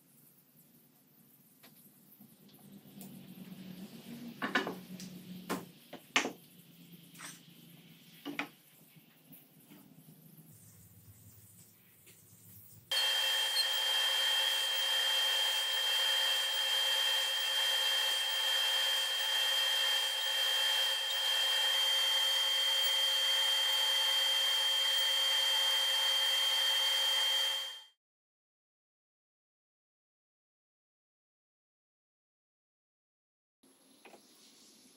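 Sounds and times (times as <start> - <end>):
table saw whining: 12.9 - 28.0.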